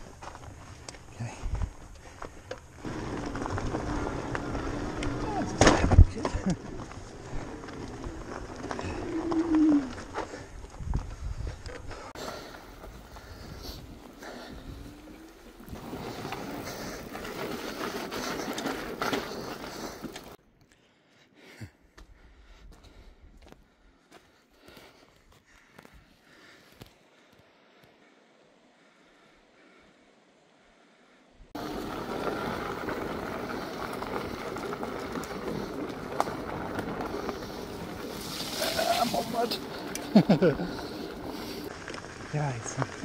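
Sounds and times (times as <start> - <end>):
bike tyres rumbling over stones: 0.0 - 20.4, 31.6 - 43.0
wind on microphone: 8.8 - 12.0.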